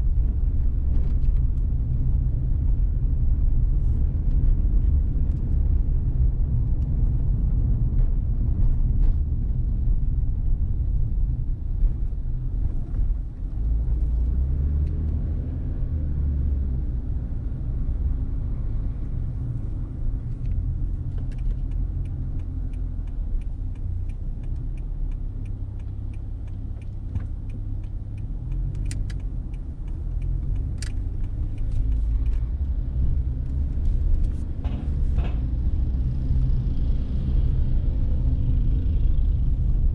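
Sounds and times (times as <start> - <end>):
road and engine rumble: 0.0 - 39.9
faint clicks and ticks: 20.3 - 34.4.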